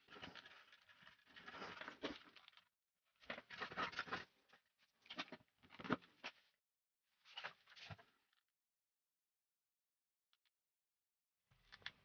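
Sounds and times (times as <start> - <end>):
wires rustling and scraping: 0.0 - 2.6.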